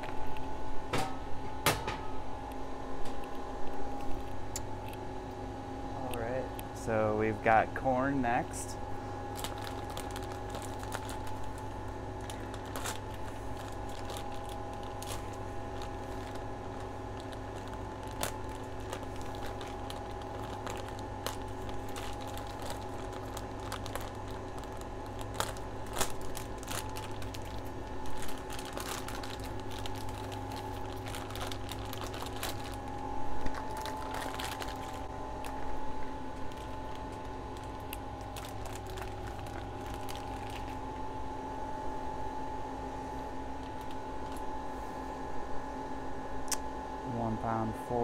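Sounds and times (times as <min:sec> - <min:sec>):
equipment hum: 0:00.0 - 0:48.0
plastic bag crinkling: 0:09.2 - 0:41.1, 0:43.5 - 0:44.6.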